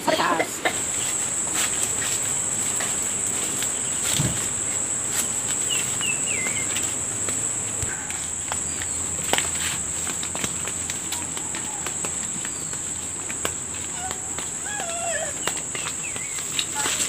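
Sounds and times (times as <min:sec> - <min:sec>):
high-pitched insect drone: 0:00.1 - 0:09.9
footsteps on dry leaves: 0:00.7 - 0:17.0.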